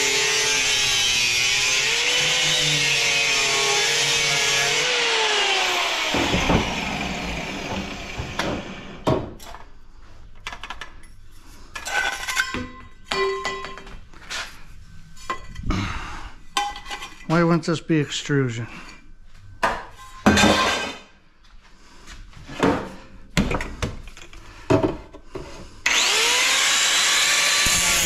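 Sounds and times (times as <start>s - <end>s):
angle grinder cutting metal pipe: 0.0s - 9.0s, 25.8s - 28.0s.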